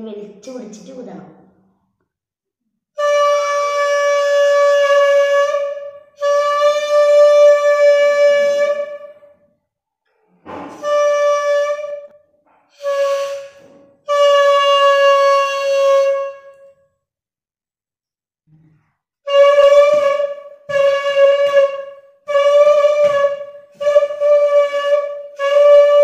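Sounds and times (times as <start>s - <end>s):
balloon whistle blasts: 3.0s - 9.4s, 10.4s - 16.7s, 19.3s - 26.0s.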